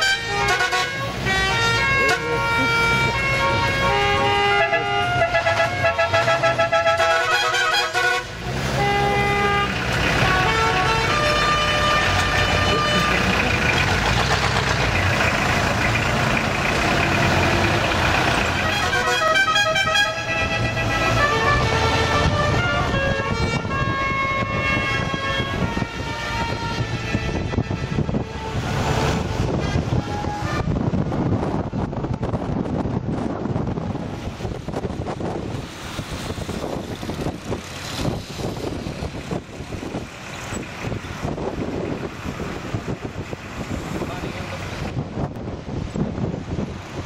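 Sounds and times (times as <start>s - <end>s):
car horns honking: 0.0s - 14.5s, 18.3s - 31.0s
car engines running: 0.0s - 47.0s
road noise: 0.0s - 47.0s.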